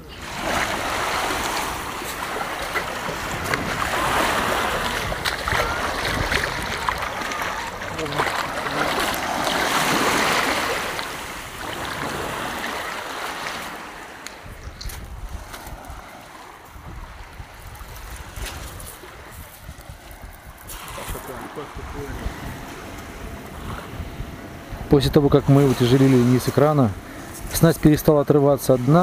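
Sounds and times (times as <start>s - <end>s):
small waves washing: 0.0s - 29.0s
net swishing through water: 0.4s - 13.8s.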